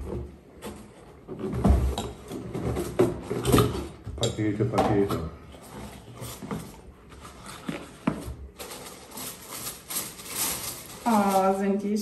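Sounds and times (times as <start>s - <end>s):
packaging rustling and crinkling: 5.6s - 11.9s.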